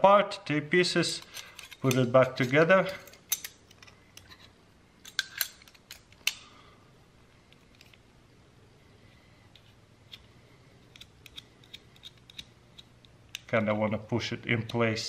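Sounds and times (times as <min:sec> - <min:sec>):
small metal clicks and scrapes: 0:01.2 - 0:06.4, 0:09.5 - 0:13.5.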